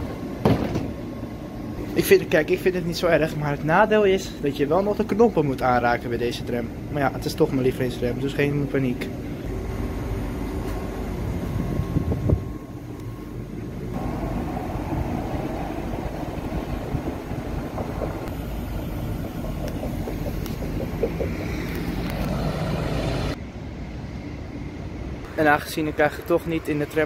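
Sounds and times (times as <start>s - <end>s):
electric tram running: 9.1s - 27.0s
motor whine: 9.2s - 23.4s.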